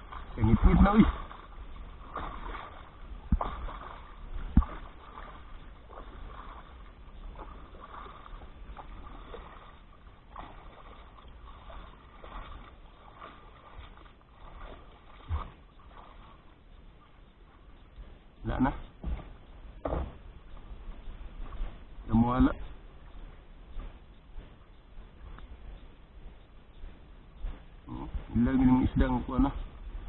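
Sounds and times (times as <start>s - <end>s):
water lapping against boat hull: 0.0s - 30.0s
knocks on boat: 3.2s - 5.1s, 18.9s - 20.3s.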